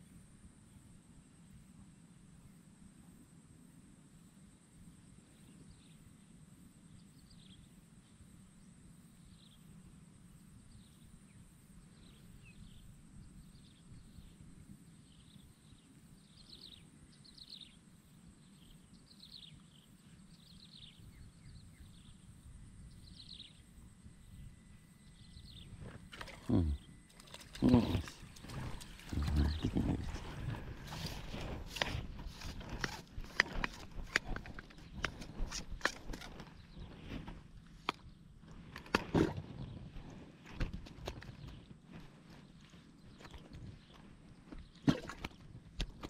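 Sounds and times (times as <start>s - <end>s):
bird chirping: 18.4s - 37.0s.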